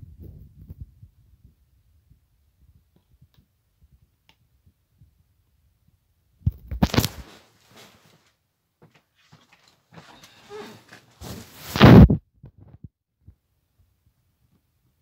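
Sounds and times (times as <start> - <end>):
knocks and rustling: 6.5 - 12.1.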